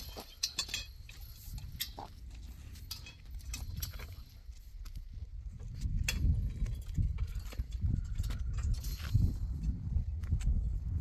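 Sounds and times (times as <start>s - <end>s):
metal pipe frame clinking: 0.0s - 4.5s, 6.0s - 9.8s.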